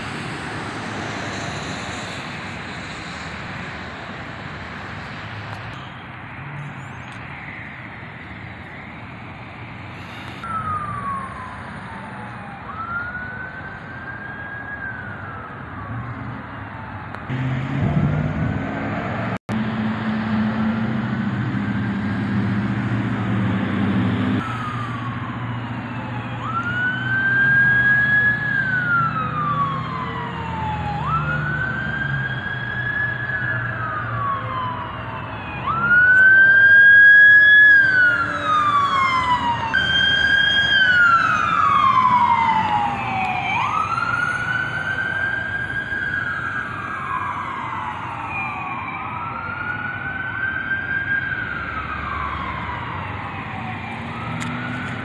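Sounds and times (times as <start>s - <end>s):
siren wailing: 4.6s - 19.2s, 23.1s - 55.0s
second siren wail: 9.9s - 19.2s, 23.8s - 55.0s.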